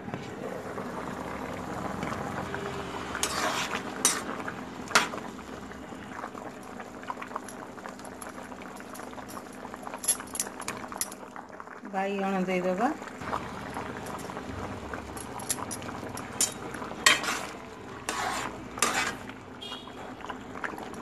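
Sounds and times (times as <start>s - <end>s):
curry bubbling in pan: 0.4s - 21.0s
metal clinks: 9.0s - 11.2s, 15.2s - 15.8s.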